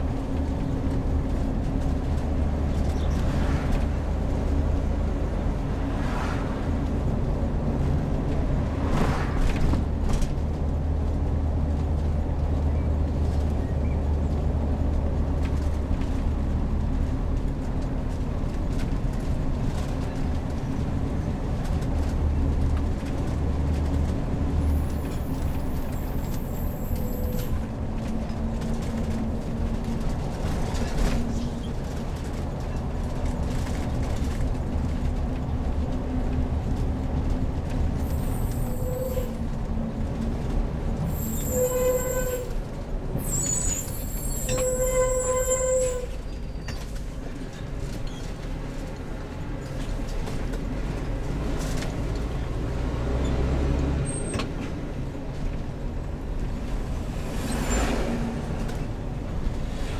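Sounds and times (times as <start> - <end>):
motorhome engine and road rumble: 0.0 - 59.9
short squealing tones: 41.1 - 42.6, 43.2 - 46.9.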